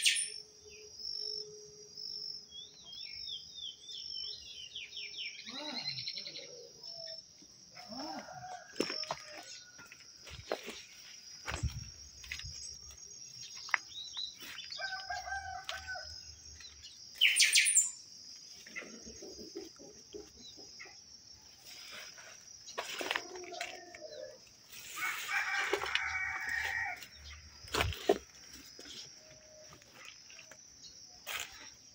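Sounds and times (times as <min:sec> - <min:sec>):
high insect drone: 0:00.0 - 0:31.9
roosters crowing: 0:07.7 - 0:10.2, 0:14.6 - 0:16.3, 0:22.9 - 0:28.2.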